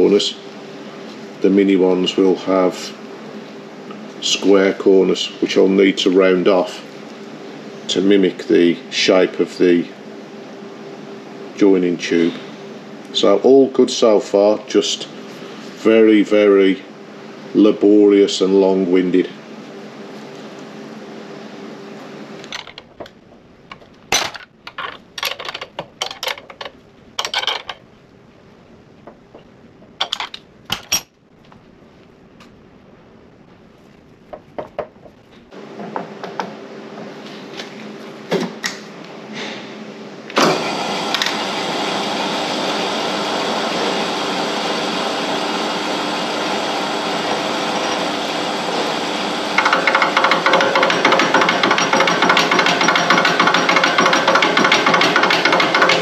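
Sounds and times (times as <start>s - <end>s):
milling machine running: 40.3s - 56.0s.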